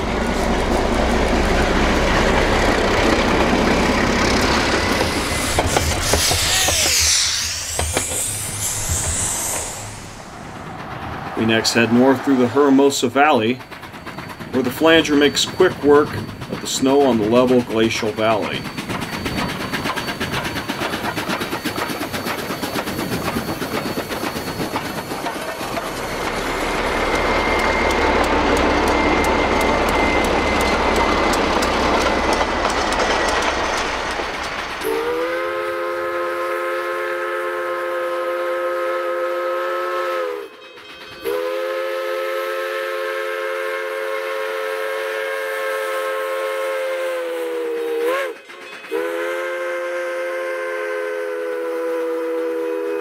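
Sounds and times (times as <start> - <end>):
steam locomotive exhaust beat: 0.0 - 53.0
steam whistle blasts: 4.4 - 10.4, 34.8 - 40.6, 41.2 - 53.0.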